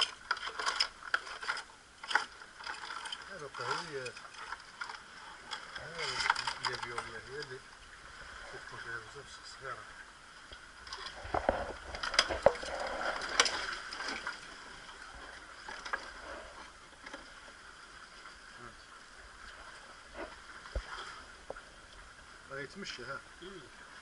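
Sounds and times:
sea water lapping against rocks: 0:00.0 - 0:24.0
clicks and knocks on rock: 0:10.9 - 0:14.4.

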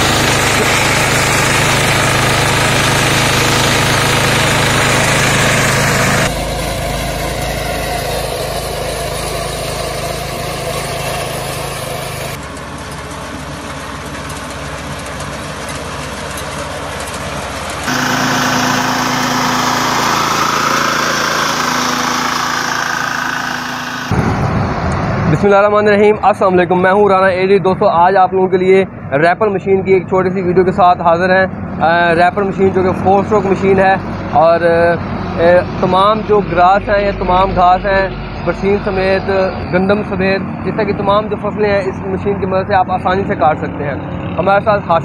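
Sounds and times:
small petrol engine running: 0:00.0 - 0:24.2.

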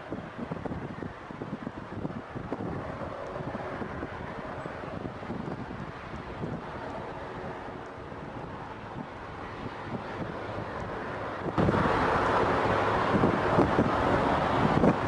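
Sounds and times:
distant jet engines roaring: 0:00.0 - 0:15.0
wind buffeting microphone: 0:00.0 - 0:15.0.

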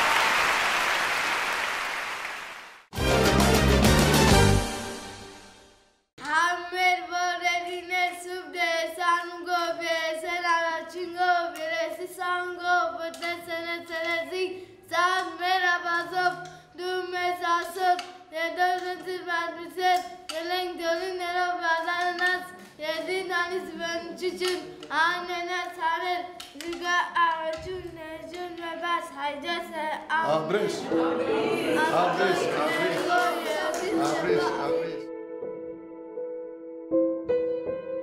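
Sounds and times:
child singing: 0:06.2 - 0:35.0.

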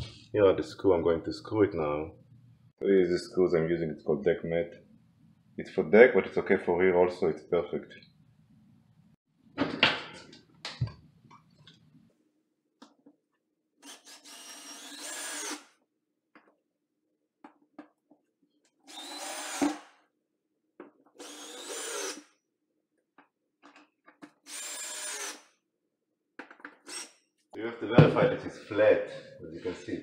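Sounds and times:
cordless drill driving screws: 0:13.8 - 0:15.7, 0:18.9 - 0:19.9, 0:21.2 - 0:22.3, 0:24.4 - 0:25.5.

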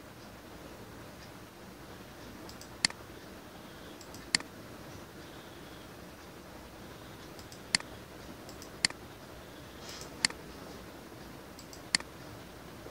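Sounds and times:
low room hiss: 0:00.0 - 0:12.9
computer mouse clicks: 0:02.5 - 0:03.0, 0:04.0 - 0:04.5, 0:07.2 - 0:09.0, 0:10.0 - 0:10.4, 0:11.6 - 0:12.1
faint ticks: 0:04.0 - 0:04.5, 0:07.2 - 0:09.0, 0:11.6 - 0:12.1.

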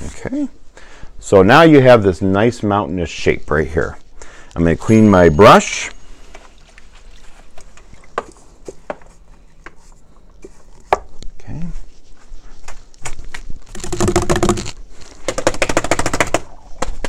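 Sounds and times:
brush tapping container: 0:13.7 - 0:16.4
fast rattling knocks: 0:13.7 - 0:17.0.

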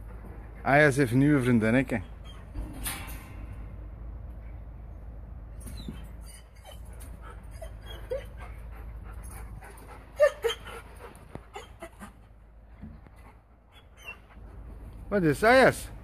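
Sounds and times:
dog whining: 0:05.6 - 0:12.3, 0:13.7 - 0:14.5.

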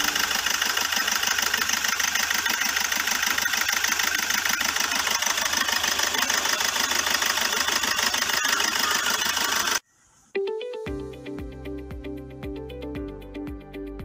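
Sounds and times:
diesel engine idling and misfiring: 0:00.0 - 0:09.8.

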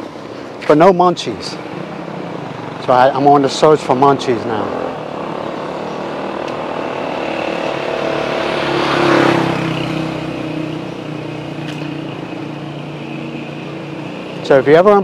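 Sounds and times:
vehicle passing: 0:01.3 - 0:15.0.

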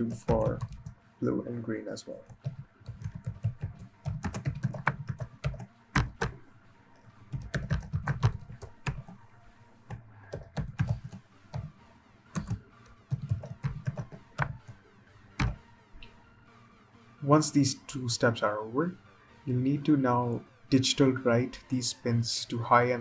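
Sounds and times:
computer keyboard typing: 0:00.0 - 0:01.0, 0:02.3 - 0:06.4, 0:07.3 - 0:09.2, 0:09.9 - 0:11.7, 0:12.3 - 0:14.8, 0:15.4 - 0:15.6.

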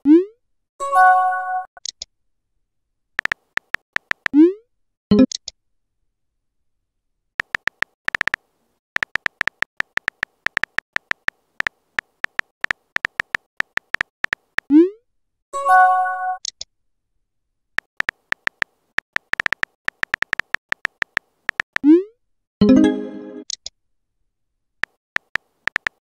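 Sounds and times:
keyboard tap clicks: 0:03.2 - 0:04.4, 0:07.4 - 0:08.4, 0:09.0 - 0:14.6, 0:17.9 - 0:21.8, 0:24.8 - 0:26.0.

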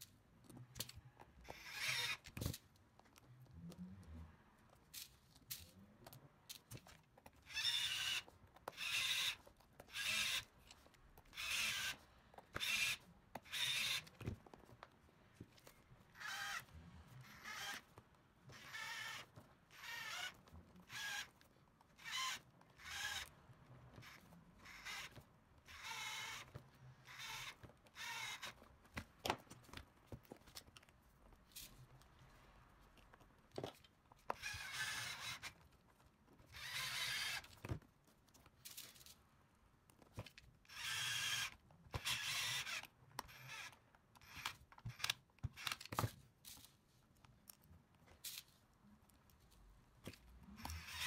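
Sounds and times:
cordless drill whirring: 0:01.4 - 0:02.5, 0:07.4 - 0:10.6, 0:11.2 - 0:14.3, 0:16.1 - 0:21.4, 0:22.0 - 0:28.7, 0:34.3 - 0:35.6, 0:36.5 - 0:37.6, 0:40.6 - 0:45.9, 0:50.6 - 0:51.0.

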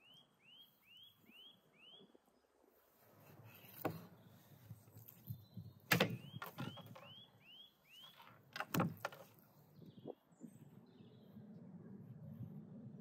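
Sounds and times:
bird chirps: 0:00.0 - 0:02.2, 0:03.5 - 0:08.4.

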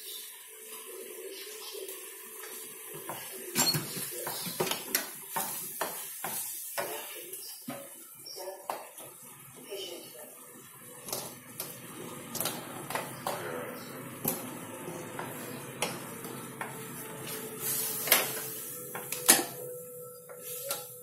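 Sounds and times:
steady hiss: 0:11.0 - 0:21.0
wooden spoon scraping a pan: 0:15.2 - 0:18.7.

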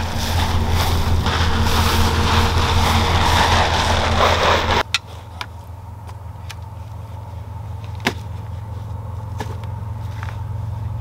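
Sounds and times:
vehicle engine revving hard: 0:00.0 - 0:04.8
steady engine hum: 0:00.0 - 0:11.0.

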